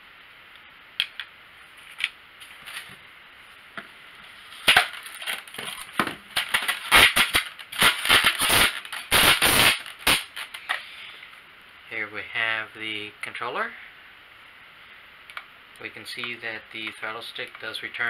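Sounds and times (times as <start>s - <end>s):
polystyrene foam squeaking: 4.4s - 10.8s.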